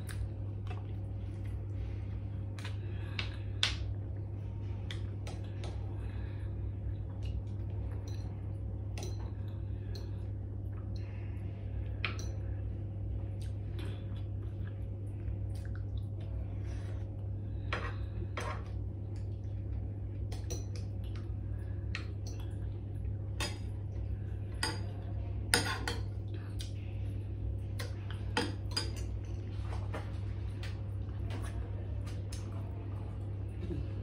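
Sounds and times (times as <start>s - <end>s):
steady low hum: 0.0s - 34.0s
cutlery clinking on ceramic bowls: 25.5s - 26.2s.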